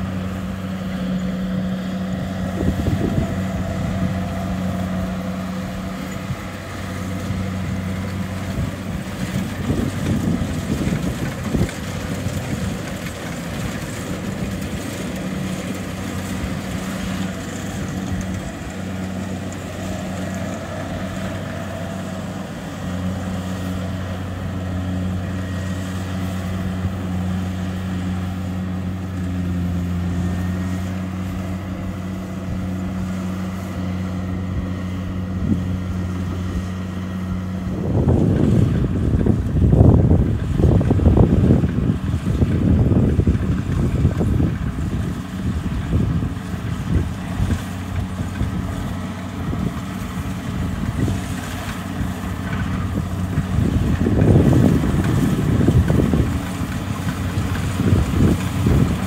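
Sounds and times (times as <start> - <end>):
combine harvester diesel engine drone: 0.0 - 59.0.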